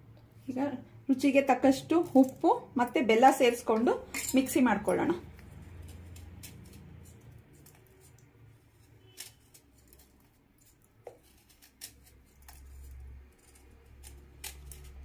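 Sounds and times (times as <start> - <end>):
low steady hum: 0.0 - 10.5
serrated knife scraping: 4.1 - 15.0.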